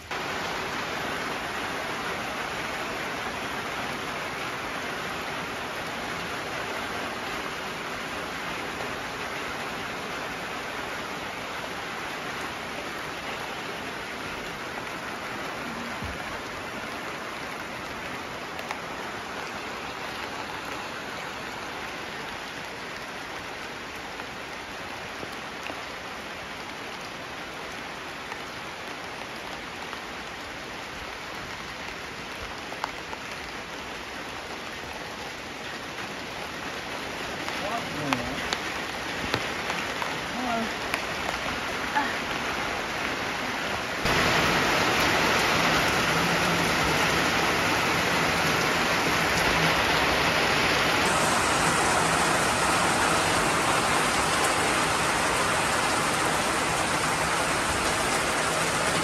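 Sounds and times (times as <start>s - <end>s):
steady rain falling: 0.0s - 59.0s
raindrop clicks: 37.4s - 40.1s.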